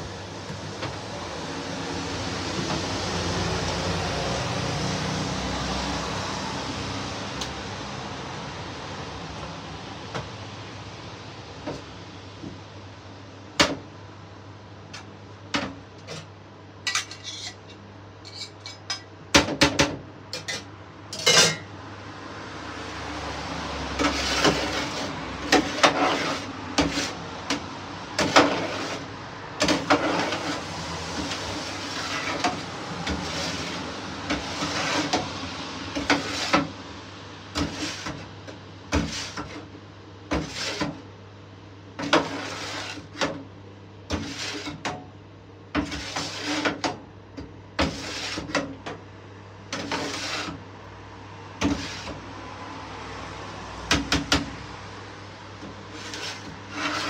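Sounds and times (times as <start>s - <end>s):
metal utensils clinking and scraping: 16.9s - 19.1s, 20.4s - 21.7s.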